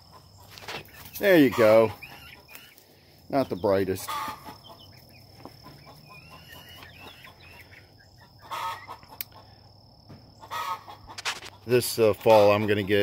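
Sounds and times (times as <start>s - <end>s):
chickens clucking and chirping: 0.0s - 13.0s
scuffing noises: 5.3s - 5.8s.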